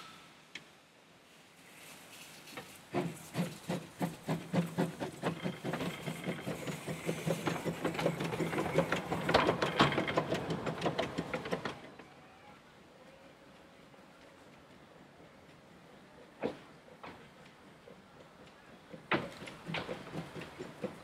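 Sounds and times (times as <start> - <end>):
steam locomotive exhaust chuffs: 2.6 - 11.8, 16.4 - 21.0.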